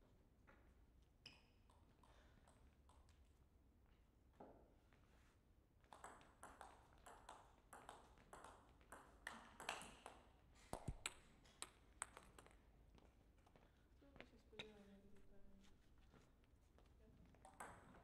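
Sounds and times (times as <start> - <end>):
table tennis ball clicking: 5.9 - 12.5.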